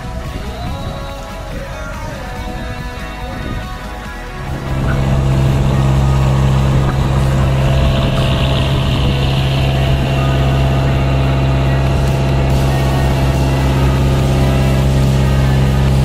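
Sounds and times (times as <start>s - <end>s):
boat engine running: 0.0s - 16.0s
water rushing along hull: 4.4s - 16.0s.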